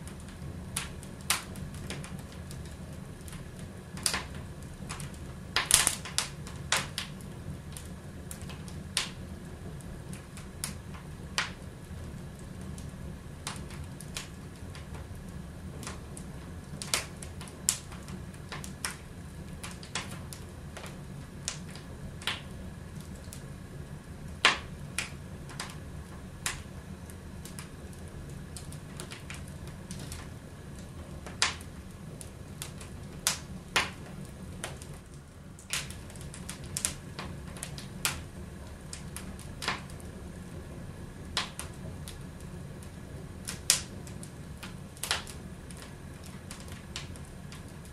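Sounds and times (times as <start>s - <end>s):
wood fire crackling: 0.0s - 47.9s.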